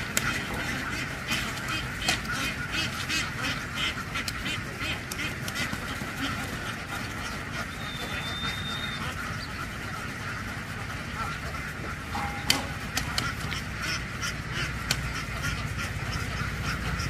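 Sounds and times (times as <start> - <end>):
flock of ducks quacking: 0.0 - 17.0.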